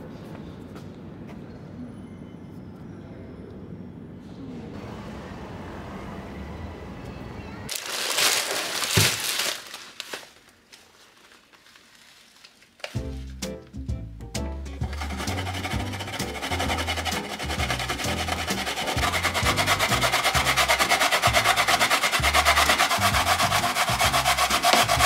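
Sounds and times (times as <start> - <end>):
low outdoor background noise: 0.0 - 14.3
loud rustling crinkling: 7.7 - 13.7, 14.8 - 25.0.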